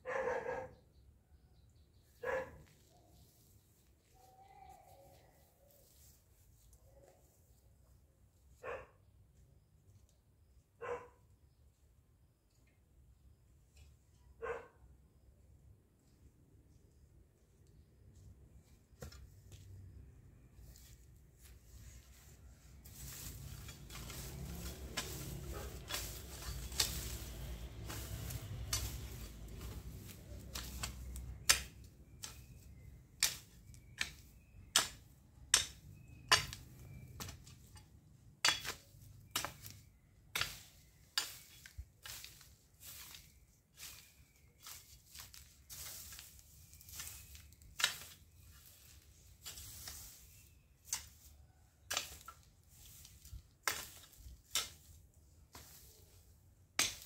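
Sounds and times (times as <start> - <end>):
garden tool striking ground: 18.7 - 20.0, 22.4 - 57.0
garden tool scraping soil: 20.6 - 57.0.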